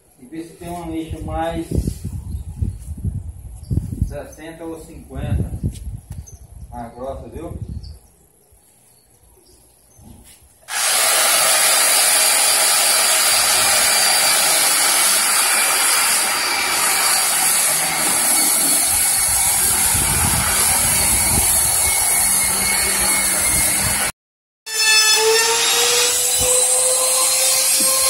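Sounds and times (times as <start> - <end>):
electric orbital sander sanding wood: 10.7 - 24.1, 24.7 - 28.0.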